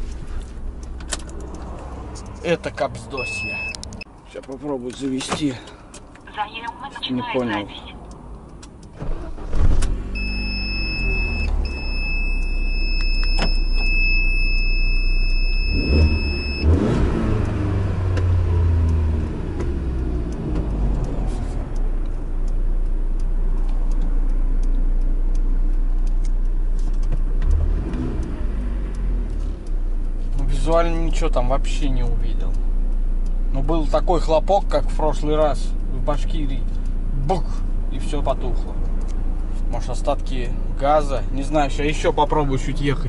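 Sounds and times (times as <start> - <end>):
van engine running: 0.0 - 4.4
high electronic warning tone: 3.1 - 3.8, 10.2 - 16.7.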